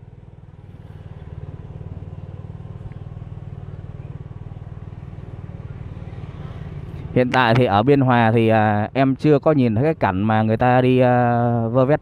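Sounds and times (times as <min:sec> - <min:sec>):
small motorbike engine putter: 0:06.6 - 0:07.8.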